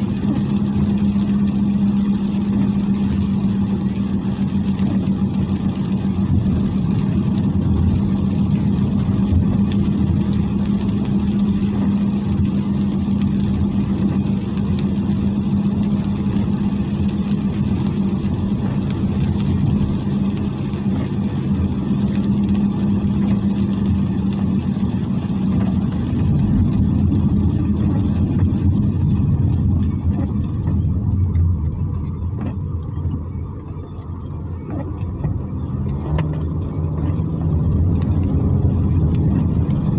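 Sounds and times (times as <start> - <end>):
car engine and road noise: 0.0 - 39.9.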